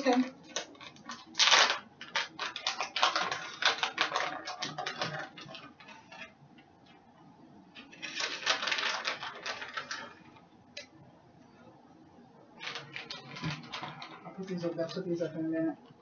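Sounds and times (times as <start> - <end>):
plastic packaging crinkling: 0.0 - 6.4, 7.8 - 10.9, 12.6 - 15.6.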